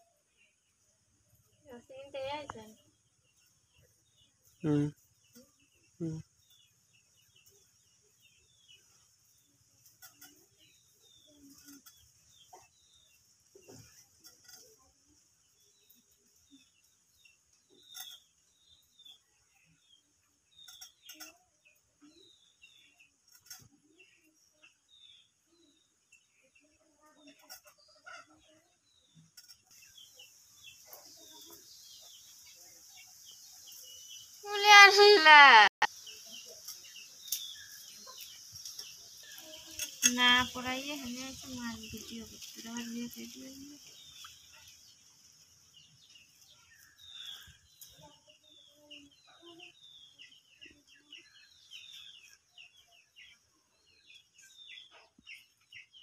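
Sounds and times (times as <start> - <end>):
faint bird chirps: 1.6 - 45.1.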